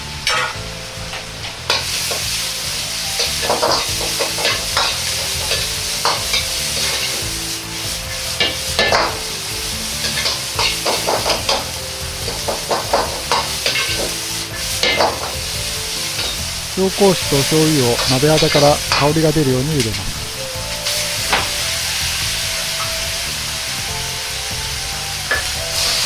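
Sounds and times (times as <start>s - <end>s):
vegetables sizzling in oil: 0.0s - 26.0s
metal ladle scraping a wok: 1.7s - 9.2s, 10.0s - 16.8s.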